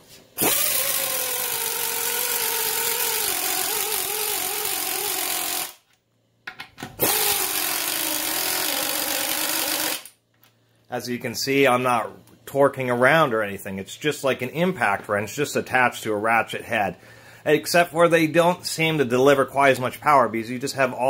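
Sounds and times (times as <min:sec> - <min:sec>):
air ratchet impacting fastener: 0:00.4 - 0:05.8, 0:07.0 - 0:10.1.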